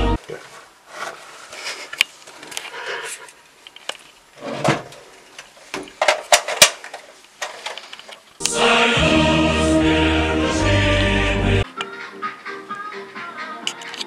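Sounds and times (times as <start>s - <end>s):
music: 8.4s - 14.0s.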